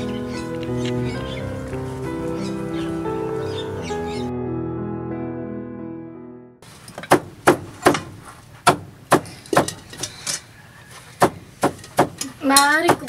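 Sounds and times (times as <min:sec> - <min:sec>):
knife chopping on wooden board: 0:11.2 - 0:12.2.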